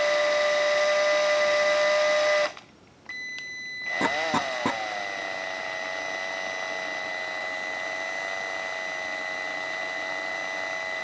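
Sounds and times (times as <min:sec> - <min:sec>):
small electric motor whining: 0:03.9 - 0:11.0.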